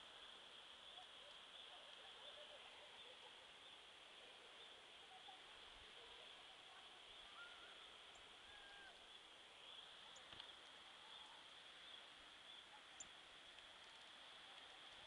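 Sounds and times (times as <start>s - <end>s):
steady high-pitched hiss: 0.0s - 15.0s
tiny high chirps and ticks: 9.0s - 15.0s.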